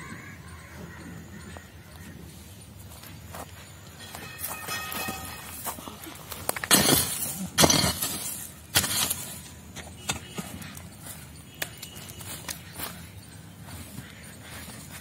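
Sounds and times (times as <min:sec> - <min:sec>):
pickaxe striking stony earth: 0:06.4 - 0:10.5.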